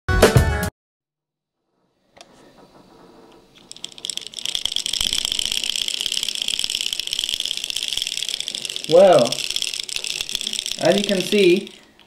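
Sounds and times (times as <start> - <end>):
small motorised mechanism rattling: 2.4 - 12.0.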